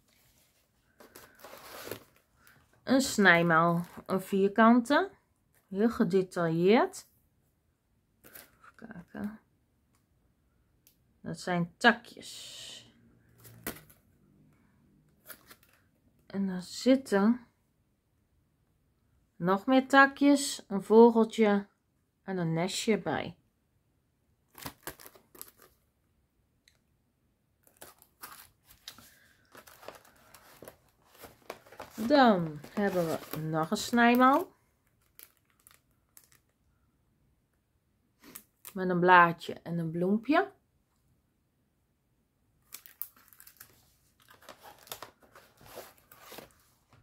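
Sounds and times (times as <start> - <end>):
cardboard envelope rustling: 0.0 - 2.7, 15.2 - 15.8, 24.5 - 25.8, 27.6 - 36.4, 42.7 - 47.0
plastic packaging crinkling: 0.9 - 2.6, 24.5 - 25.8, 27.6 - 36.6, 42.6 - 46.5.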